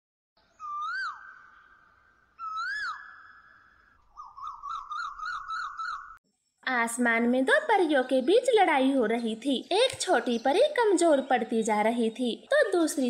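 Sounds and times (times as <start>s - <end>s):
bird warbling notes: 0.5s - 6.2s
bird whistles: 0.5s - 6.2s.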